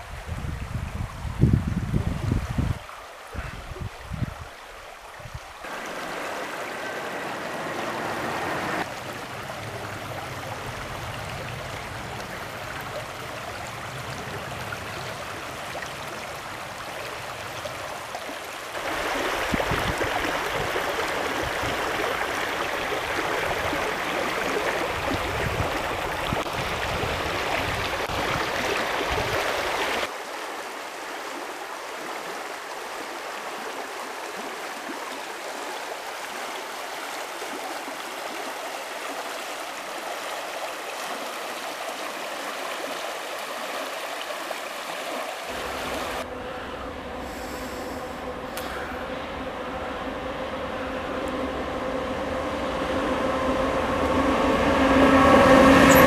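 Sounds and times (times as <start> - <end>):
river rushing over stones: 1.3 - 46.3.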